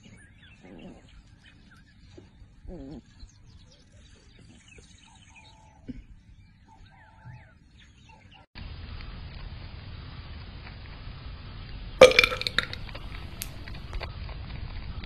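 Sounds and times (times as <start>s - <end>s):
birds chirping: 0.0s - 8.5s.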